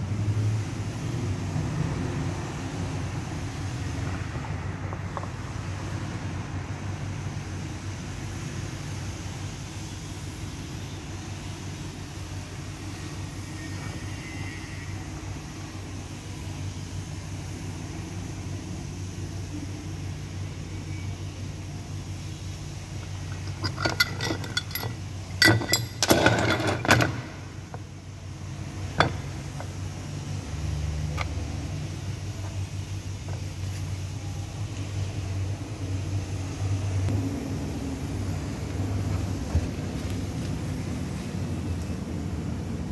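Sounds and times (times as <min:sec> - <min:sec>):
metal parts clinking: 0:23.2 - 0:27.5
low hum: 0:35.2 - 0:42.9.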